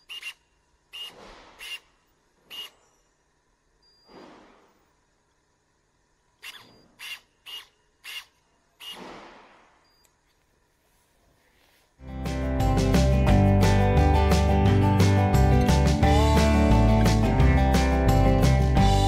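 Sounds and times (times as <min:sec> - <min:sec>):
electric pruning shears whirring: 0:06.4 - 0:09.0.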